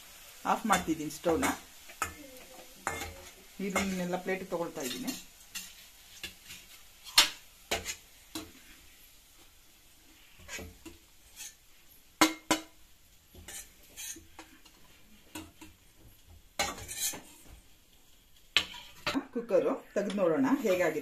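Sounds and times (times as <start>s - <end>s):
spatula scraping steel pan: 10.3s - 11.6s, 13.4s - 15.7s, 16.6s - 17.4s, 18.6s - 19.2s.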